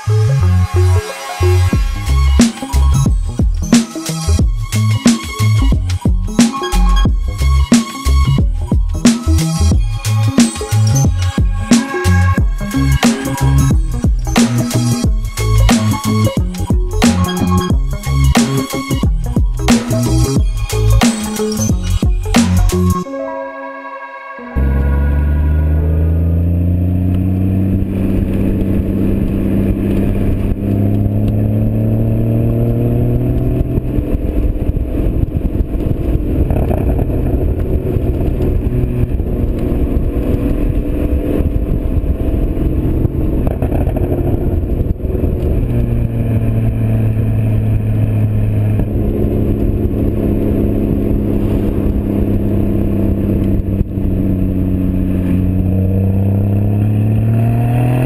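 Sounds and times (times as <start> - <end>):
car engine driving: 0.0 - 23.0, 24.5 - 58.0.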